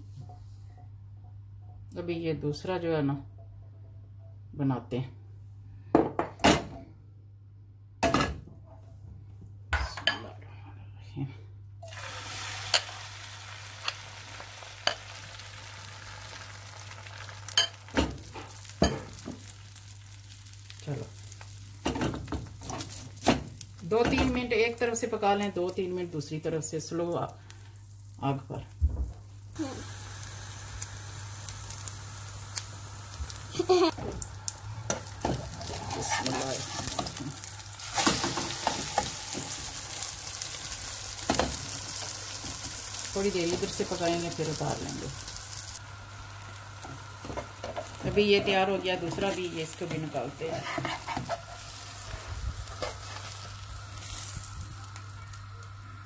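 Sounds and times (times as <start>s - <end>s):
egg sizzling in hot oil: 11.8s - 24.0s, 24.8s - 28.6s, 29.2s - 56.0s
spatula scraping and tapping pan: 47.2s - 51.8s.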